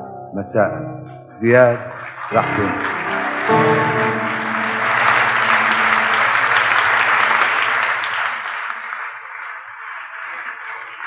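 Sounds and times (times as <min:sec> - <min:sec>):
audience applauding: 0:01.7 - 0:11.0
held musical chord: 0:02.4 - 0:08.0.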